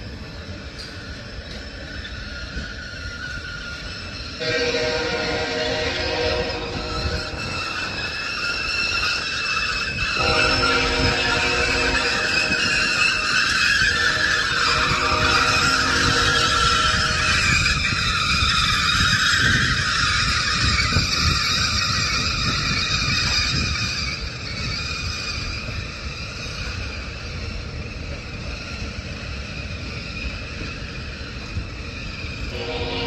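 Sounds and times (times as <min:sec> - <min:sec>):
train wheels rumbling on rails: 0:00.0 - 0:33.0
hissing wheel screech: 0:00.4 - 0:33.0.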